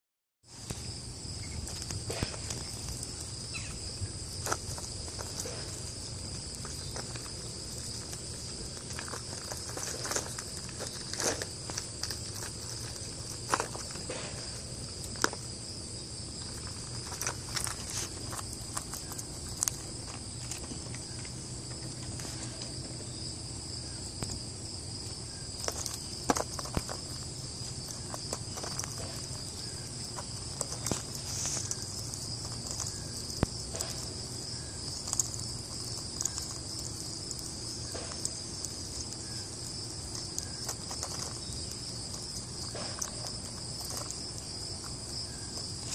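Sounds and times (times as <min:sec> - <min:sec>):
high-pitched insect drone: 0:01.3 - 0:04.8
peanut shells clicking and rustling: 0:01.6 - 0:22.4, 0:25.0 - 0:45.9.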